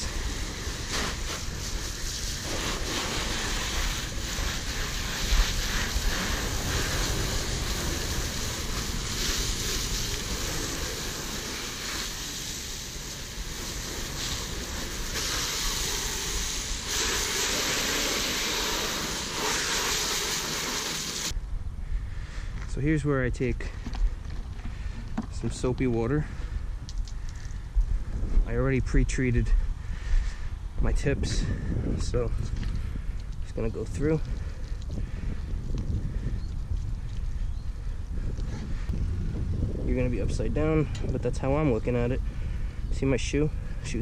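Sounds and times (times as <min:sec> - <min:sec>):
hose spraying water on car: 0:00.0 - 0:21.3.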